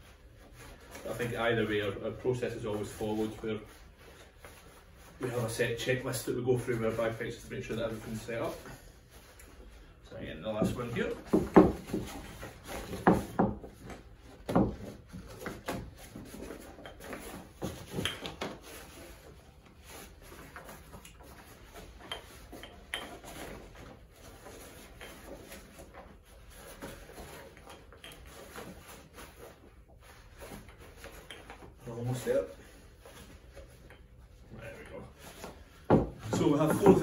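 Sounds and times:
wooden stock knocking: 10.6s - 12.3s.

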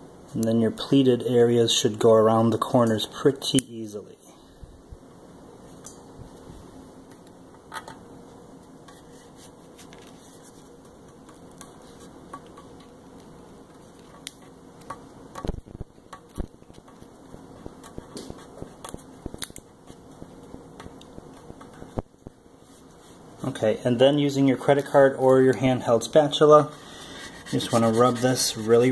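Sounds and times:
faint steady hum: 0.0s - 28.9s
small taps and clicks: 10.8s - 22.4s.

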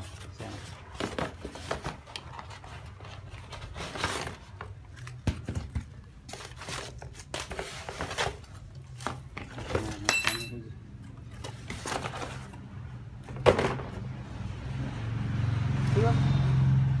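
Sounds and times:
cardboard and plastic rustling: 0.0s - 10.1s, 11.0s - 14.1s.

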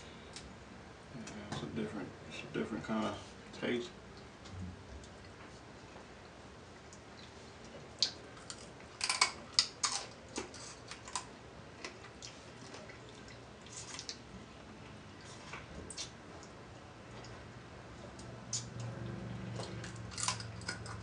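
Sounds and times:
crab shells cracking: 8.0s - 11.3s, 19.8s - 21.0s.

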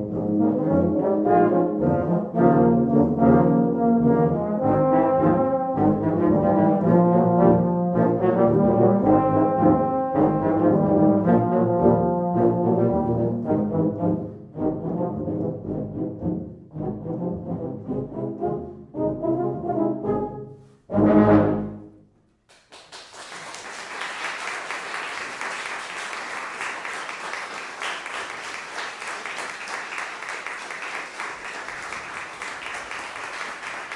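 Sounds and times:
tuba and euphonium ensemble: 0.0s - 22.1s
audience applause: 22.5s - 33.9s.

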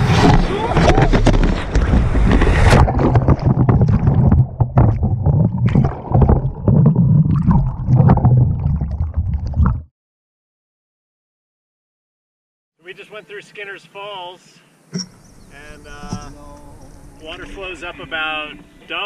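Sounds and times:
muffled underwater churning: 0.0s - 9.9s
underwater knocks: 0.9s - 9.8s.

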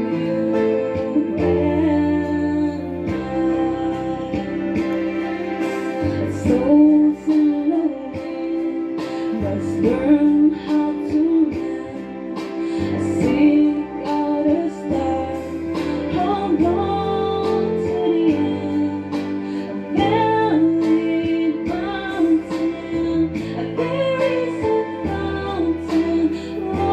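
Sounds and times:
instrumental accompaniment: 0.0s - 26.9s
woman singing into a microphone: 0.0s - 26.9s.

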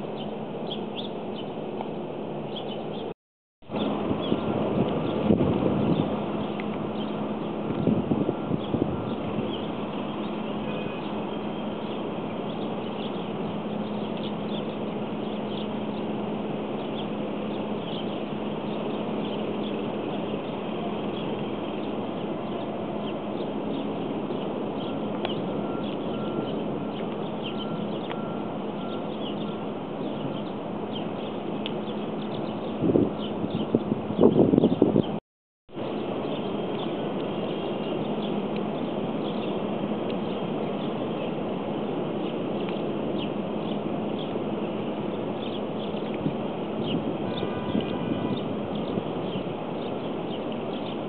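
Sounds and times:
constant low hum: 0.0s - 51.0s
high bird chirps: 22.6s - 35.2s.

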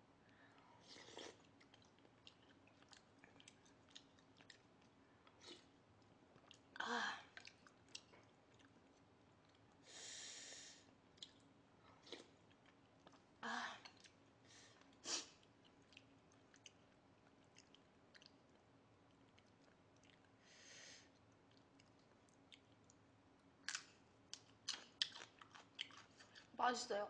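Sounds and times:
person chewing: 0.3s - 9.8s, 11.1s - 20.4s, 21.0s - 26.6s
breathy hiss: 9.8s - 10.9s.

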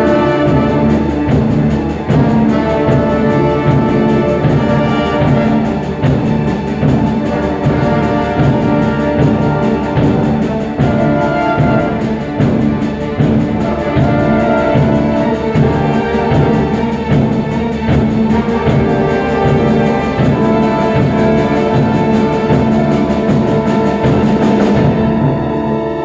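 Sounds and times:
orchestra playing sustained chords: 0.0s - 26.0s.

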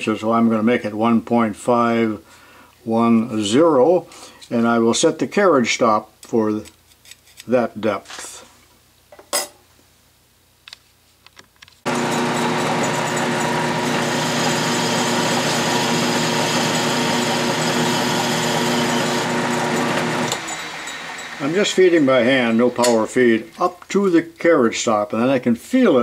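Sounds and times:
metal lathe running: 11.9s - 23.5s.

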